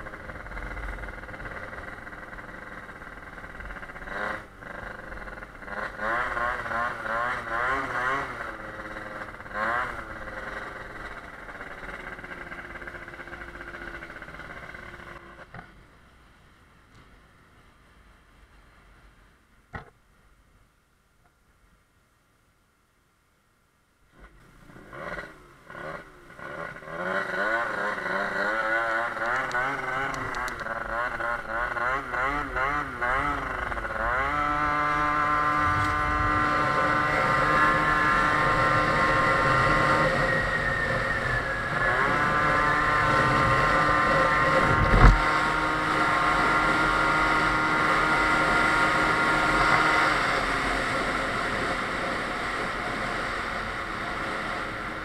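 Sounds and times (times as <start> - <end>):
two-stroke scooter engine revving: 0.0 - 15.5, 24.2 - 55.0
thump: 19.7 - 20.0.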